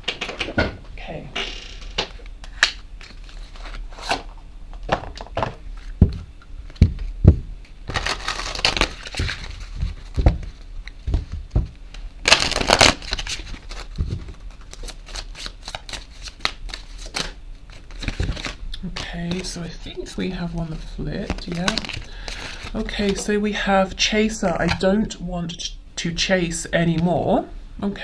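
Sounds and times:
cards shuffling: 7.9 - 11.3, 12.2 - 19.6, 21.2 - 23.2.

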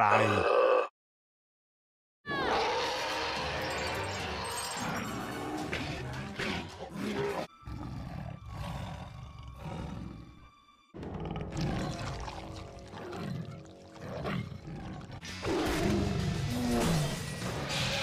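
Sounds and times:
monster growls and roars: 0.0 - 0.9, 11.0 - 18.0
background music: 2.3 - 18.0.

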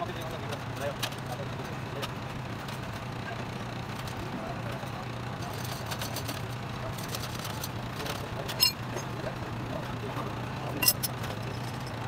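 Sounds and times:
sharp metallic clink: 8.6 - 8.8, 10.8 - 11.2.

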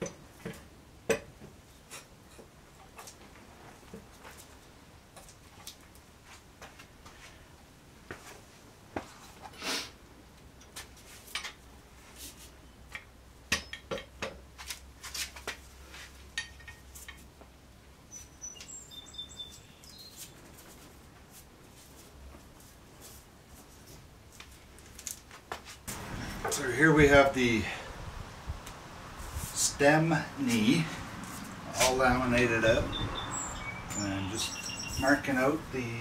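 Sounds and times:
bird chirps: 18.1 - 20.4, 32.8 - 35.3.

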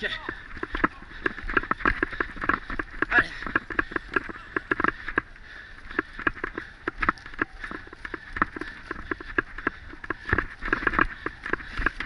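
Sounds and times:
mountain bike rattling: 0.0 - 12.0.

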